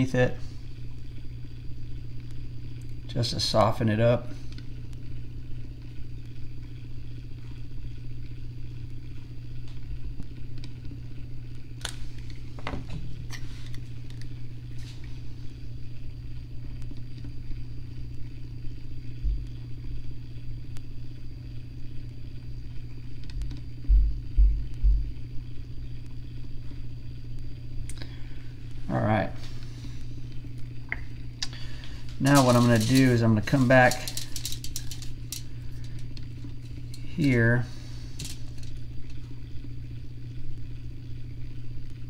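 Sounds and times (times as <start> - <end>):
motor humming: 0.0 - 42.0
dull low thumps: 23.9 - 25.1.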